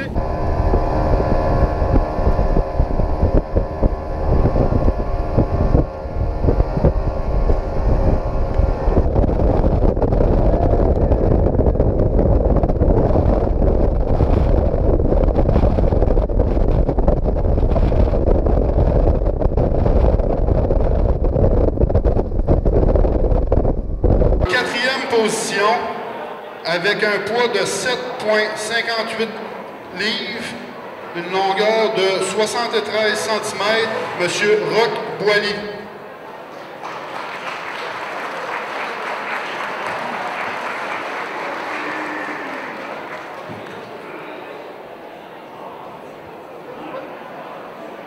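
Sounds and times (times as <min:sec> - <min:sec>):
wind buffeting microphone: 0:00.0 - 0:24.5
outboard motor running: 0:00.1 - 0:11.0.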